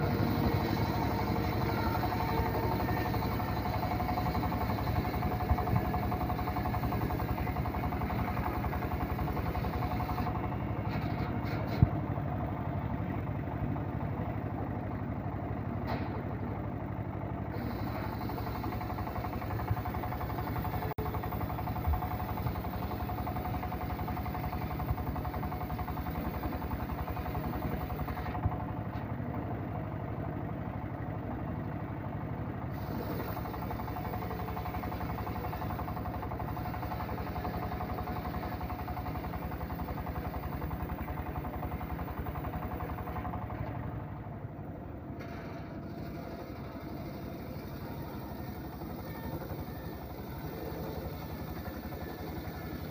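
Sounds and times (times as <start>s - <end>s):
engine drone: 0.0s - 52.9s.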